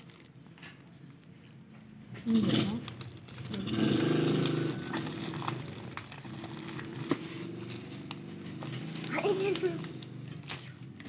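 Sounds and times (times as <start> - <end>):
plastic mailer bag crinkling: 0.0 - 0.4, 2.8 - 11.0
tape being pulled: 2.3 - 10.8.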